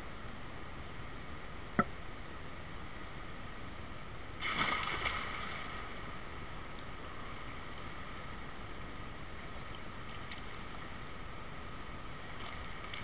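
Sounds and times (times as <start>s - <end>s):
indoor pool hiss: 0.0s - 13.0s
swimmer splashing: 4.4s - 6.1s.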